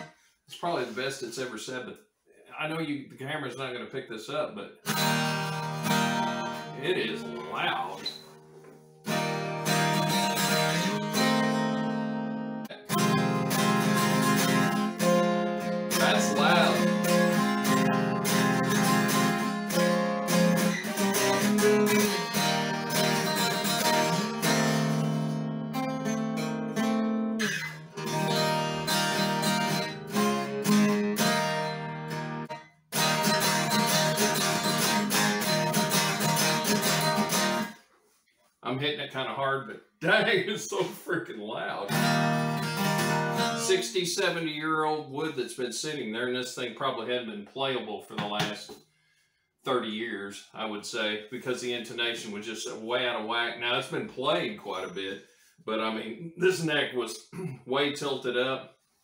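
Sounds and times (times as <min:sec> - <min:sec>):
acoustic guitar chords strummed: 0:04.9 - 0:37.8, 0:41.9 - 0:44.0.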